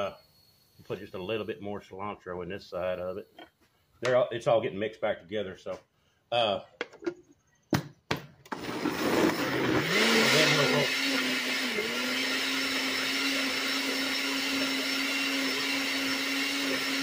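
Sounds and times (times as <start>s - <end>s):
blender motor pureeing: 8.5s - 17.0s.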